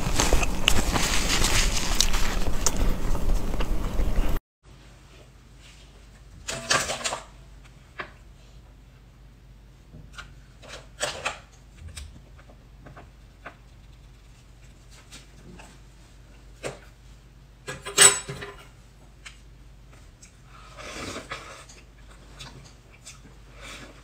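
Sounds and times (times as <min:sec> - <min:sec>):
faint low hum: 0:00.0 - 0:04.4.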